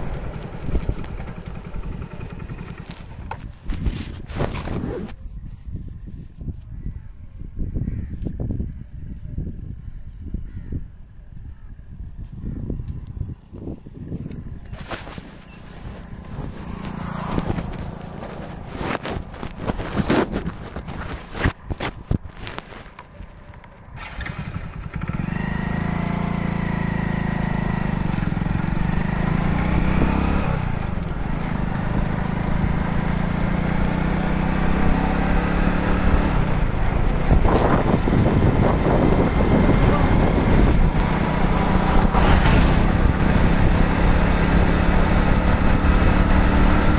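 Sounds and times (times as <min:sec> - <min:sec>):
motorcycle engine pulling away: 0:00.0 - 0:05.2, 0:14.6 - 0:21.4, 0:23.8 - 0:46.9
wind on microphone: 0:02.6 - 0:25.3, 0:36.0 - 0:46.9.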